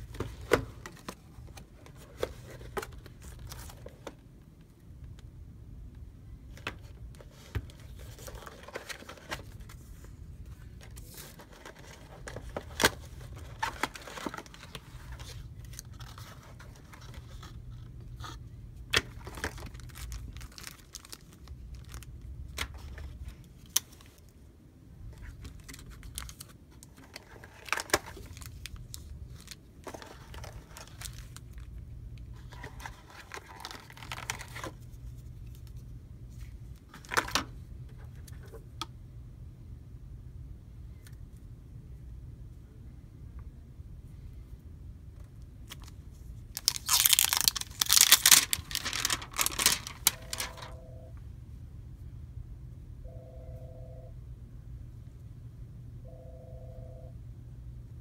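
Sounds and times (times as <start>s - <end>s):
plastic wrap rustling and crinkling: 19.0s - 24.2s, 25.2s - 31.7s, 32.3s - 34.9s, 45.7s - 50.8s.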